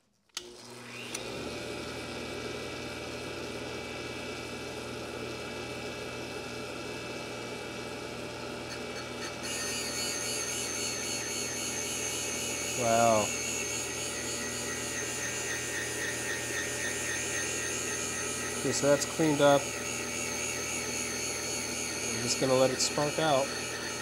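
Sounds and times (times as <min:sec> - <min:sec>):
grinding machine motor running: 0:08.7 - 0:24.0
stone grinding valve: 0:08.7 - 0:24.0.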